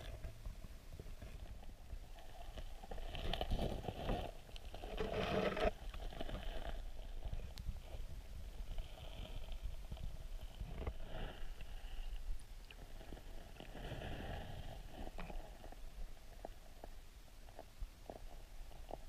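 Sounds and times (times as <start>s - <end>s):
underwater river rumble: 0.0s - 19.0s.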